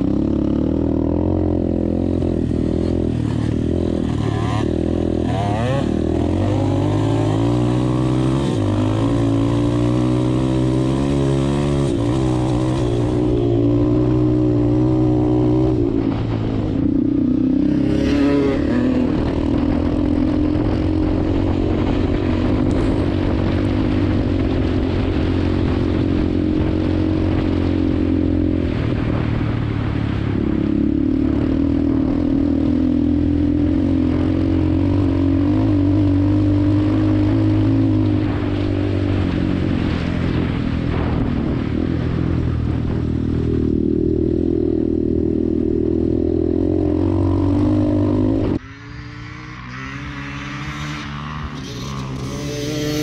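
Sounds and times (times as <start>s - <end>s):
dirt bike engine revving: 0.0s - 29.2s, 43.5s - 53.0s.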